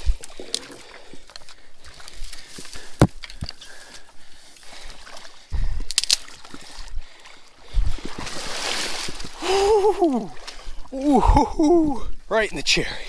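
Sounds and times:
wading steps sloshing in water: 0:00.0 - 0:11.0
dry reed stalks crackling: 0:05.9 - 0:06.5.

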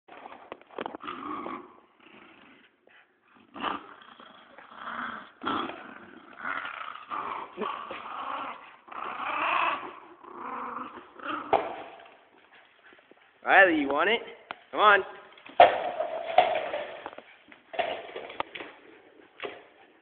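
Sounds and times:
small dog growling: 0:00.1 - 0:12.3.

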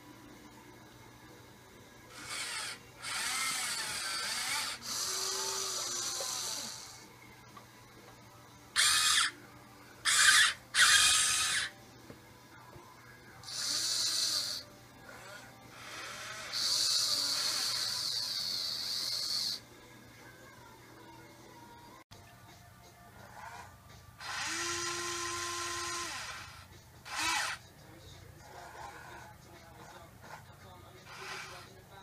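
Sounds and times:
electric motors whirring: 0:02.1 - 0:07.1, 0:08.7 - 0:09.4, 0:10.0 - 0:11.8, 0:13.4 - 0:19.6, 0:23.3 - 0:27.7, 0:31.0 - 0:31.8.

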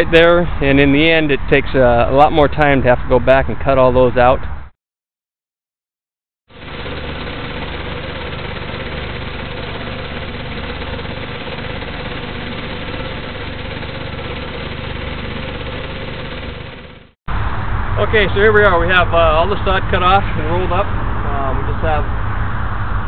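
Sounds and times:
small gasoline engine running: 0:06.5 - 0:17.2.

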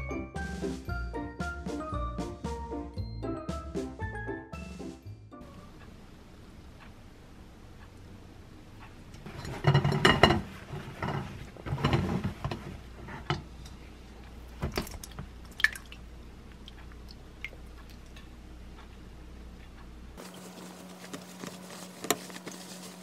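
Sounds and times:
cloth and container handling: 0:20.2 - 0:23.0
yogurt squelching: 0:20.2 - 0:23.0.

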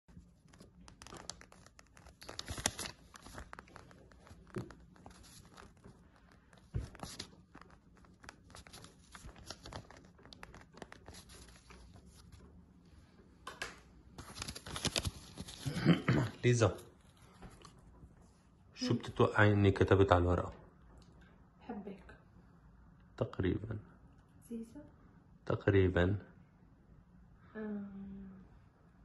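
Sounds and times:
paper rustling: 0:00.1 - 0:12.5, 0:14.2 - 0:15.8.

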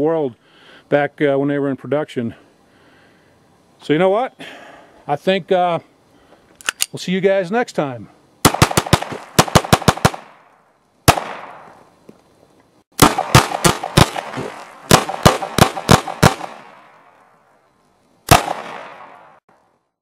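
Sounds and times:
pistol shots cracking: 0:08.4 - 0:10.5, 0:11.1 - 0:11.8, 0:13.0 - 0:17.2, 0:18.3 - 0:19.4
gunshot echo: 0:08.5 - 0:10.4, 0:11.1 - 0:11.8, 0:13.0 - 0:17.0, 0:18.3 - 0:19.4.

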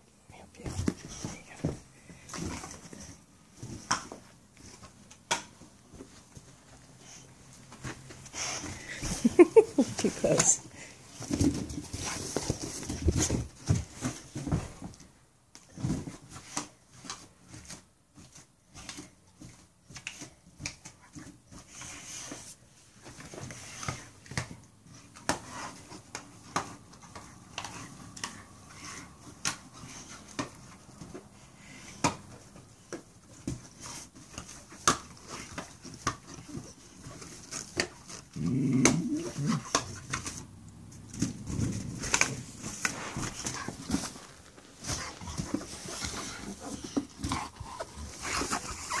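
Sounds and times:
dog grunting: 0:38.3 - 0:39.8.

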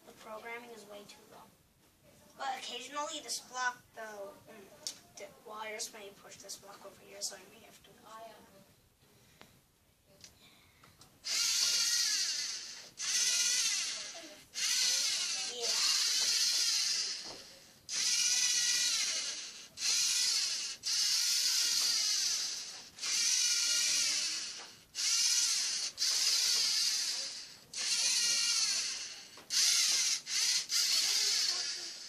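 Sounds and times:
robot electric motors whining: 0:11.3 - 0:32.0.

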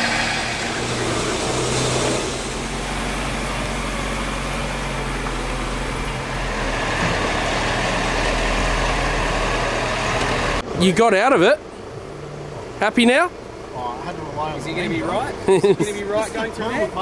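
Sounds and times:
vehicle engine running: 0:00.0 - 0:10.8.

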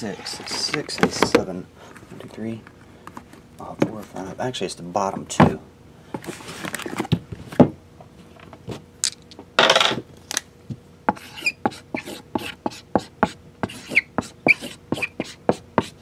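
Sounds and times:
marker writing on plastic squeaking: 0:11.1 - 0:16.0.

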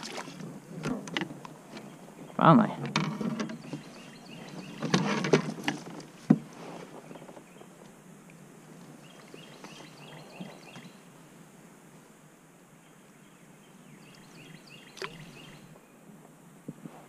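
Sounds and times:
water splashing: 0:00.0 - 0:00.5, 0:14.9 - 0:15.4.

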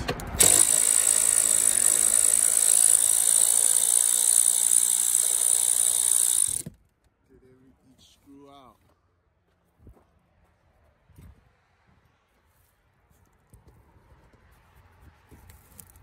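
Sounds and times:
cordless ratchet spinning: 0:00.3 - 0:06.7.

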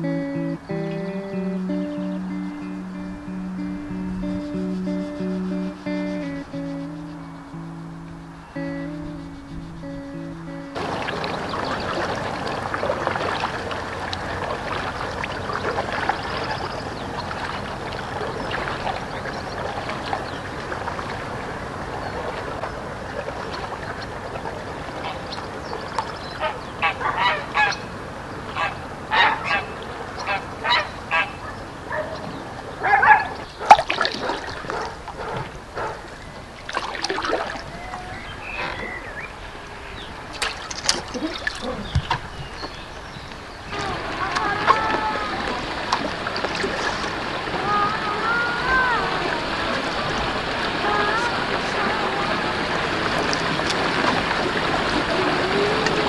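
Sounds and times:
geese honking: 0:26.4 - 0:27.8, 0:28.5 - 0:31.5.

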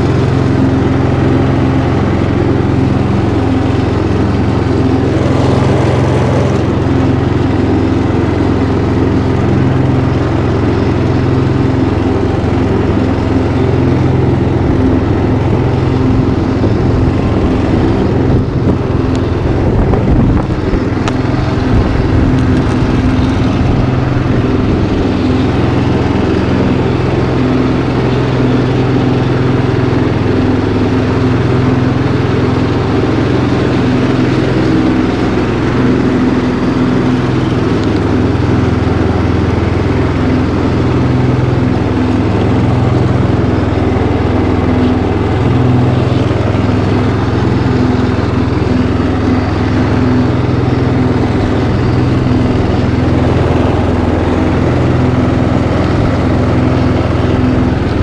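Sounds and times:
riding lawn mower engine: 0:00.0 - 0:58.0.

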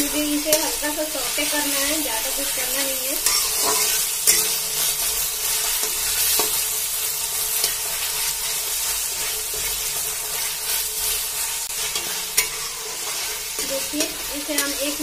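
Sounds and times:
onions sizzling in hot oil: 0:00.0 - 0:15.0
metal spatula scraping pan: 0:00.4 - 0:06.7, 0:07.5 - 0:15.0.

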